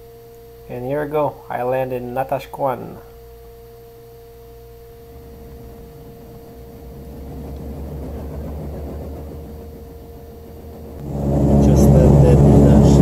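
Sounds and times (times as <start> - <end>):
propeller plane engine hum: 3.1 - 13.0
low rumble: 3.6 - 13.0.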